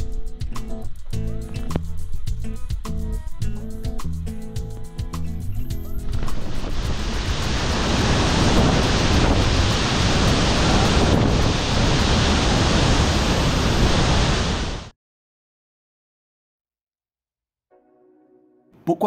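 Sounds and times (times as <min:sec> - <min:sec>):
waterfall rushing: 0:06.0 - 0:14.9.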